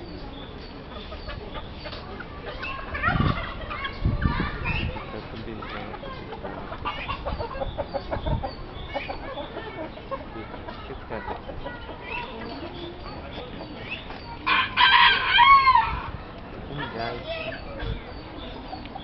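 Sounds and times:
chickens clucking: 0:00.0 - 0:19.0
rooster crowing: 0:14.5 - 0:16.0.

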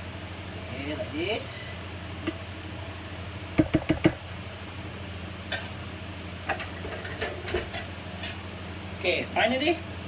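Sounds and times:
steady low hum: 0:00.0 - 0:10.0
metal pot knocking on pan: 0:03.6 - 0:04.2.

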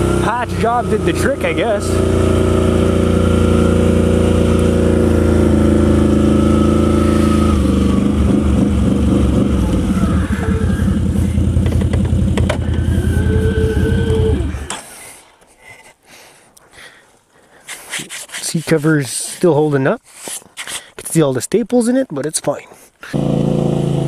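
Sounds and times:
atv engine running: 0:00.0 - 0:14.8, 0:23.1 - 0:24.0.

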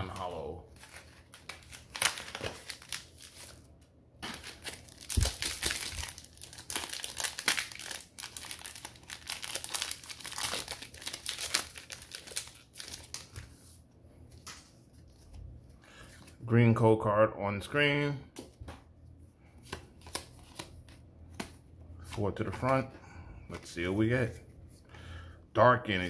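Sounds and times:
foil wrapper crinkling and tearing: 0:00.8 - 0:03.6, 0:04.2 - 0:13.4.

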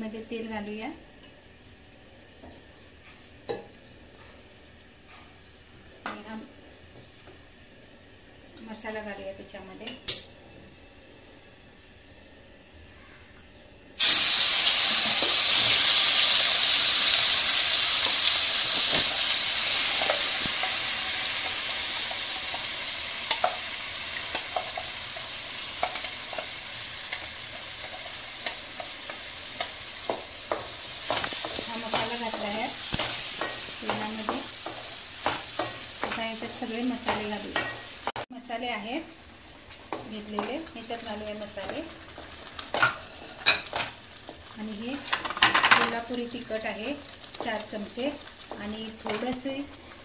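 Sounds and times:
paste sizzling in hot oil: 0:14.0 - 0:50.0.

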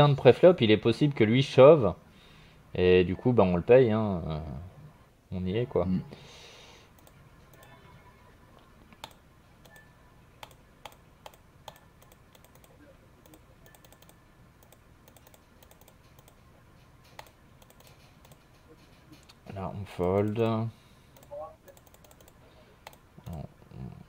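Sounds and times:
computer mouse clicks: 0:06.9 - 0:07.7, 0:08.9 - 0:16.4, 0:17.1 - 0:18.5, 0:20.0 - 0:23.4.

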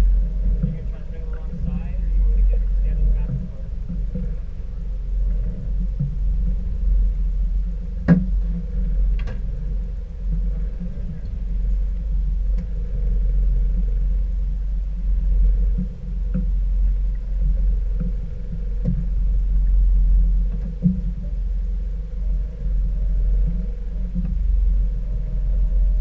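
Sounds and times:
boat engine rumble: 0:00.0 - 0:26.0
light ticks: 0:08.0 - 0:09.5, 0:10.3 - 0:12.8, 0:15.4 - 0:19.8.

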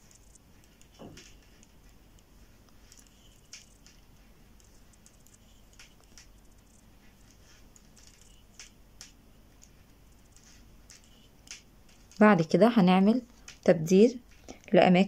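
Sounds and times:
metal knitting needles clicking: 0:04.6 - 0:06.8, 0:07.8 - 0:12.2.

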